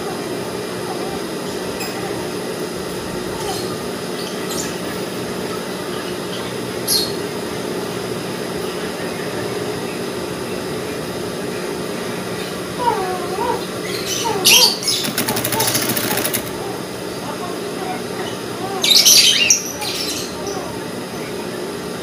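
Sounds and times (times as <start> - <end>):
sewing machine running: 14.8 - 16.8.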